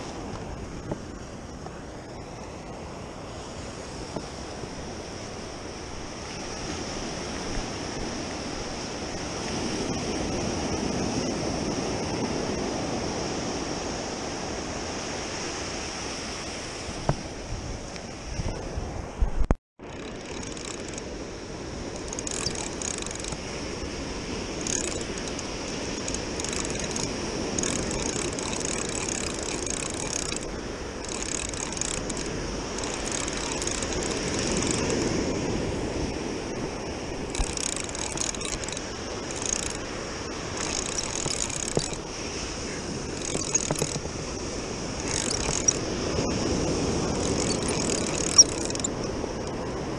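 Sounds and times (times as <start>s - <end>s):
ocean surf breaking: 0.0s - 19.2s, 19.8s - 49.9s
fishing reel gears whirring: 19.8s - 42.2s, 43.0s - 49.6s.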